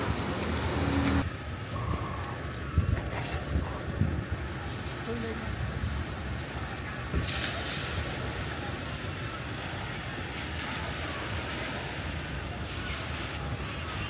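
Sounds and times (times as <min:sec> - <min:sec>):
wind buffeting microphone: 0:02.4 - 0:08.6
small waves washing onto sand: 0:03.0 - 0:14.0.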